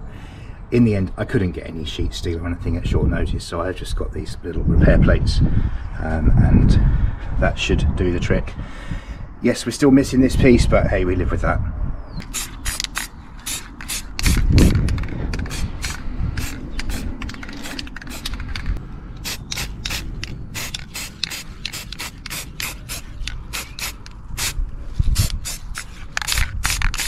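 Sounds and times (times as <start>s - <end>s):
spray paint can hissing: 12.2s - 27.0s.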